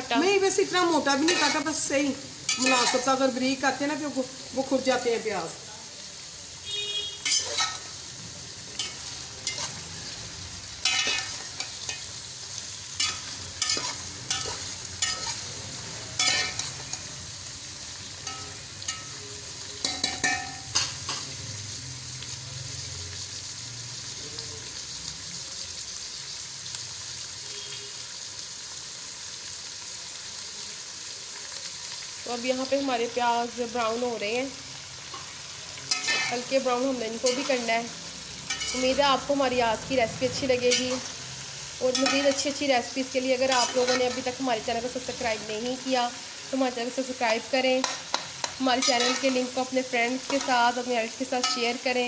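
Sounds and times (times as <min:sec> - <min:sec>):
onions sizzling in hot oil: 0:00.0 - 0:52.0
metal spoon scraping a pot: 0:01.1 - 0:01.7, 0:02.5 - 0:03.2, 0:07.2 - 0:08.0, 0:08.8 - 0:09.9, 0:10.8 - 0:12.1, 0:13.0 - 0:15.5, 0:16.2 - 0:17.0, 0:35.9 - 0:36.5, 0:43.5 - 0:44.3, 0:47.8 - 0:49.5.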